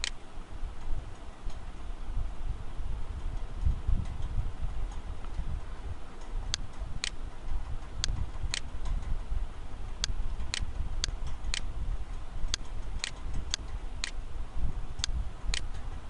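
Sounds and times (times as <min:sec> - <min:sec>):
computer mouse clicking: 0:00.0 - 0:00.2, 0:06.2 - 0:07.2, 0:07.9 - 0:09.1, 0:10.0 - 0:11.7, 0:12.5 - 0:14.2
low background rumble: 0:00.0 - 0:16.0.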